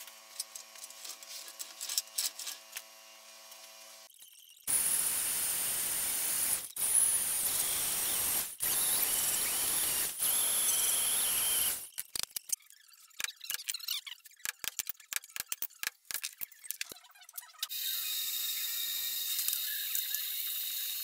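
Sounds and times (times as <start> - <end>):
band saw cutting metal: 4.7 - 11.9.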